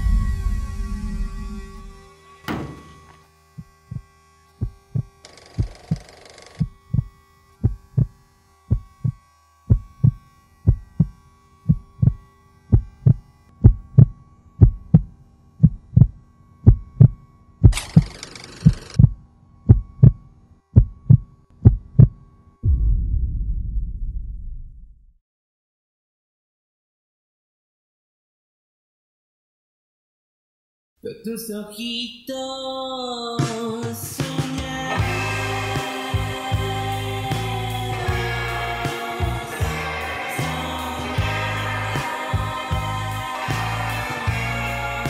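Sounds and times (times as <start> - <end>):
loud low rumble: 0.0 - 3.1, 20.8 - 25.2
deep muffled heartbeat thumps: 3.6 - 5.7, 8.7 - 11.1, 12.8 - 17.8, 20.8 - 24.7.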